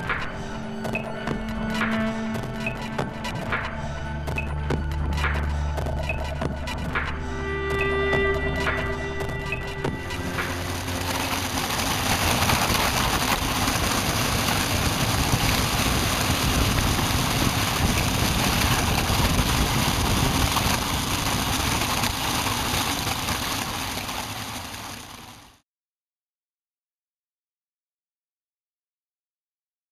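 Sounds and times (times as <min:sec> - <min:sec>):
wind rushing over microphone: 0:09.8 - 0:23.3
blade runners hissing over ice: 0:10.0 - 0:25.6.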